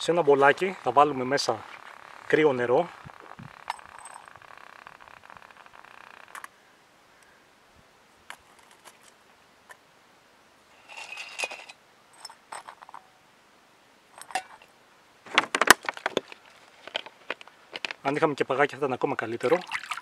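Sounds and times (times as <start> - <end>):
scraping rattle on rock: 0.0 - 6.5, 10.8 - 13.1, 15.3 - 18.3
metallic clinks: 3.5 - 4.5, 10.8 - 13.2, 14.2 - 14.7.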